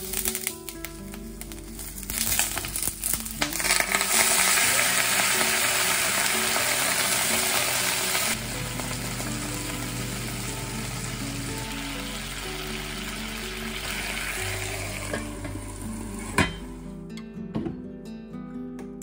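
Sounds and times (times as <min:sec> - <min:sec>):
peppers sizzling in hot oil: 0:00.0 - 0:16.8
water hissing in hot pan: 0:02.0 - 0:16.8.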